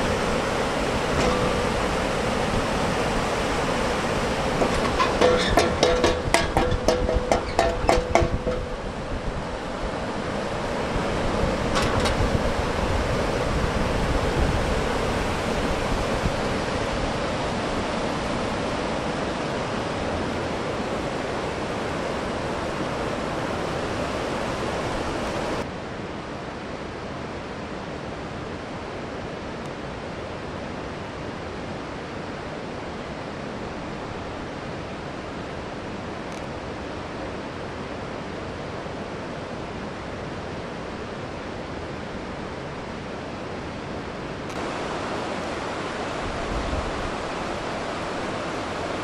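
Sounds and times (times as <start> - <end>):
wind on microphone: 0.0 - 25.6, 44.5 - 49.0
mountain river rushing: 0.0 - 49.0.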